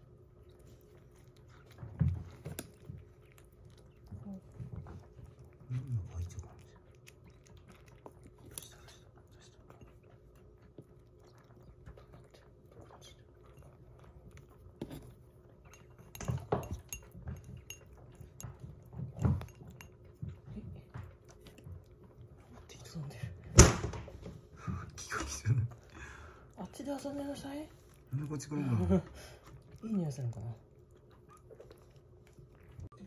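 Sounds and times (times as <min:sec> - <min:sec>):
kitten chewing and lapping: 0:00.0 - 0:33.0
spoon scraping glass bowl: 0:15.7 - 0:18.5.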